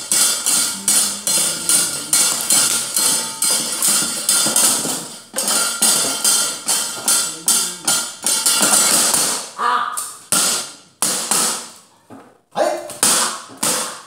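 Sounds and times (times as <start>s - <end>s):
metal plates struck with knocker: 0.0s - 9.5s.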